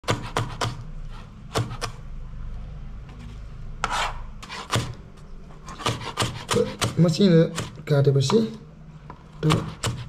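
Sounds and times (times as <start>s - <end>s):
knife chopping on cutting board: 0.0s - 0.8s, 1.5s - 2.0s, 3.8s - 5.0s, 5.6s - 8.6s, 9.4s - 10.0s.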